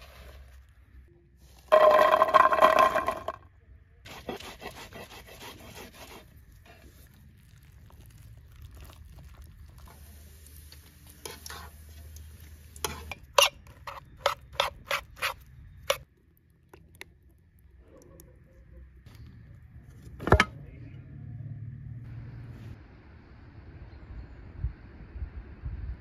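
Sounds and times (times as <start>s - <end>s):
herbs squished by hand in bowl: 6.3s - 12.9s
oil frying: 6.4s - 13.8s.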